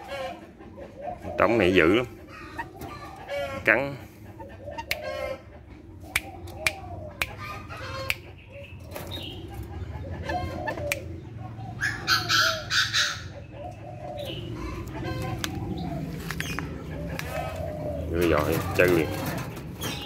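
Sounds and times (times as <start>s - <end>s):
moorhens calling: 0.0s - 20.0s.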